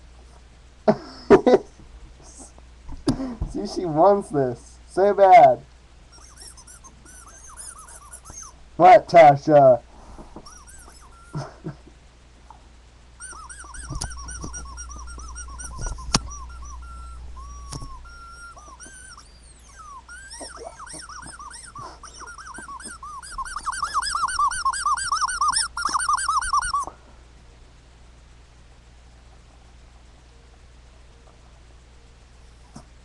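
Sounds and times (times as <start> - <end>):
squeaky toy squeaking: 6.1 - 8.6, 10.4 - 11.5, 13.2 - 26.9.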